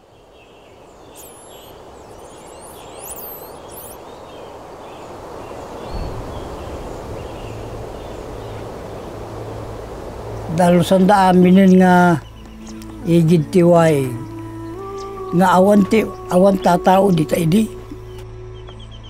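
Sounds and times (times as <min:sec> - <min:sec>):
birds chirping and whistling: 0:00.4 - 0:09.1, 0:10.3 - 0:19.0
steady hiss: 0:00.8 - 0:18.0.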